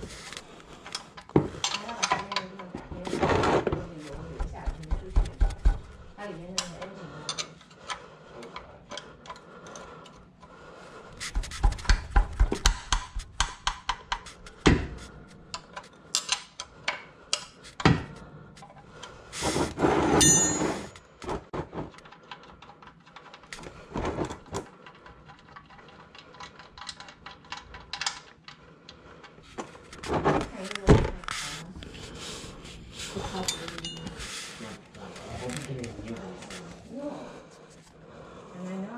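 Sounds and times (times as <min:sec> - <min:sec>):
tools clicking and knocking: 0:00.2 - 0:10.5, 0:11.1 - 0:19.2, 0:20.2 - 0:31.3.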